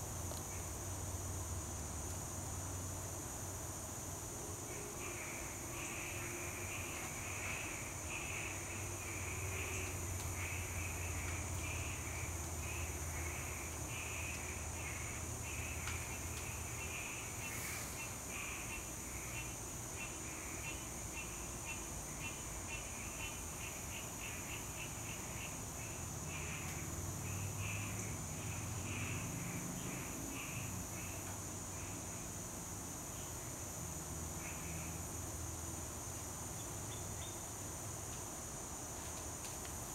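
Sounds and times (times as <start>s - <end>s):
insect drone: 0.0s - 39.9s
pulsing insect call: 0.0s - 39.9s.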